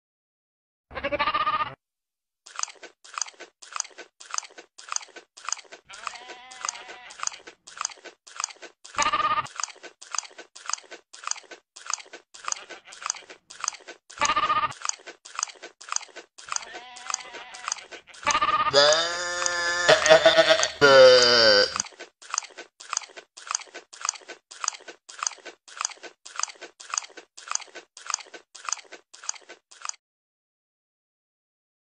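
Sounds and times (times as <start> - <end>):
goat bleating: 0.9 - 1.8, 5.9 - 7.5, 9.0 - 9.5, 12.4 - 13.4, 14.2 - 14.8, 16.5 - 21.8
goat chewing crunching: 2.5 - 30.0.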